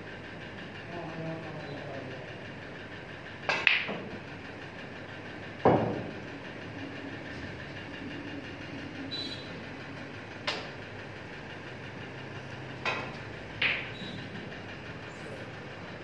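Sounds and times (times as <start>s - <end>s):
steady background hum: 0.0s - 16.0s
snooker balls clicking: 3.4s - 4.2s, 10.4s - 10.8s, 12.7s - 14.0s.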